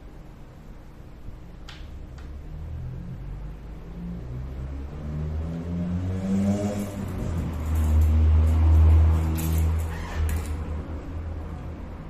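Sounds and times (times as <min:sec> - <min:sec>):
vehicle engine rumbling: 0:02.5 - 0:12.0.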